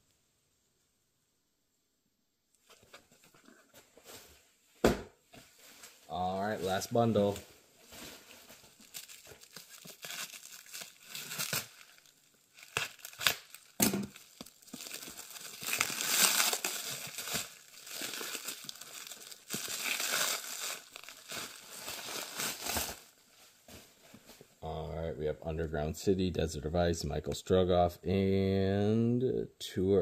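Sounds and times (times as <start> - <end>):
plastic wrap crinkling: 5.4 - 24.6.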